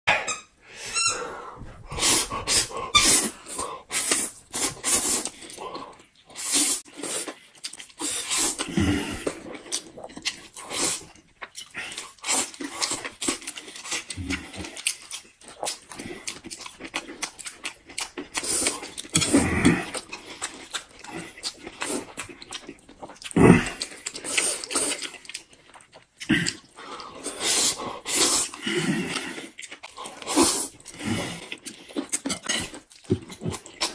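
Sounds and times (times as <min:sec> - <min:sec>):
people slurping noodles: 0:01.8 - 0:11.1, 0:18.3 - 0:20.4, 0:23.2 - 0:25.1, 0:26.2 - 0:33.9.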